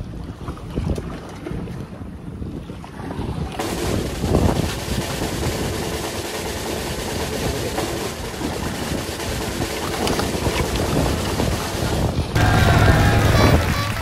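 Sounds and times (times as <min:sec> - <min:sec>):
rush of wind and water: 0:00.0 - 0:14.0
boat engine running: 0:03.6 - 0:14.0.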